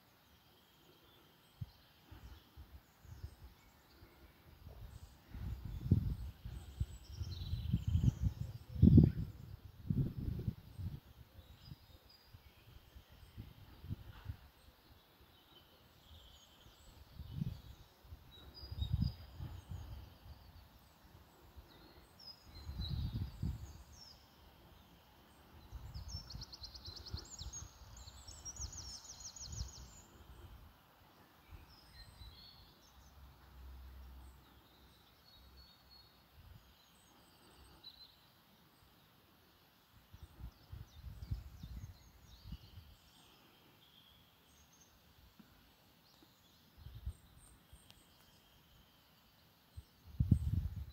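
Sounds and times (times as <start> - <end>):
small birds chirping: 0.0 - 50.9
wind gusting on the microphone: 1.6 - 3.6, 4.5 - 14.6, 16.1 - 20.7, 21.3 - 24.1, 25.6 - 30.6, 40.1 - 43.0, 49.7 - 50.9.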